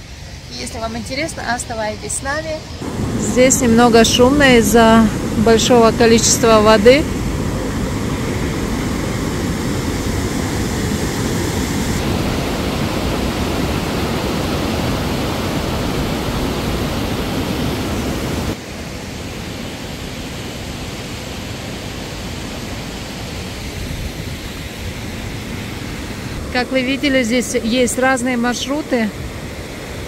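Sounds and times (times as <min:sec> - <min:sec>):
stream rushing over rocks: 0:02.8 - 0:26.5.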